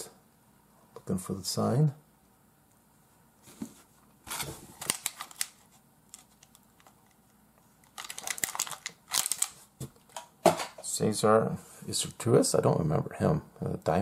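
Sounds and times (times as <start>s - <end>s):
plastic packaging clicks and rustles: 4.3s - 10.8s.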